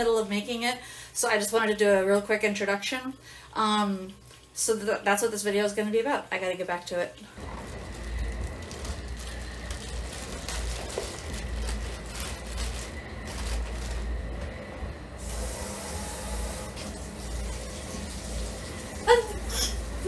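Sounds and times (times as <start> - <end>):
water running from tap: 1.3 - 7.9, 15.2 - 20.0
plastic bags crinkling: 7.4 - 15.2.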